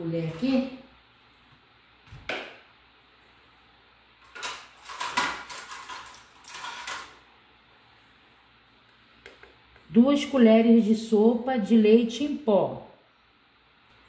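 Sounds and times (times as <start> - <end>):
utensils clattering and clinking: 4.2 - 7.2.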